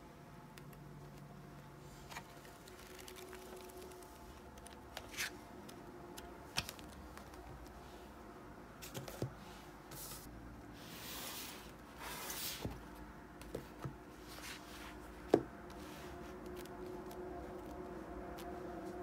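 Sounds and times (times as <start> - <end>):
faint steady hum: 0.0 - 19.0
books sliding on a desk: 8.8 - 12.8
books tapping on a desk: 13.4 - 14.0.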